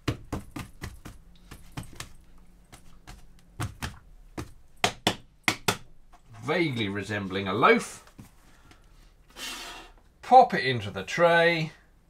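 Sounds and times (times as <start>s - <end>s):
hands patting bread dough: 0.0s - 6.2s.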